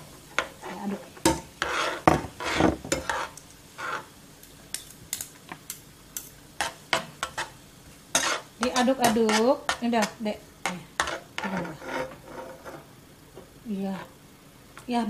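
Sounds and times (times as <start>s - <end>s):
metal utensils scraping a wok: 0.3s - 4.1s, 6.2s - 10.2s, 11.0s - 12.9s.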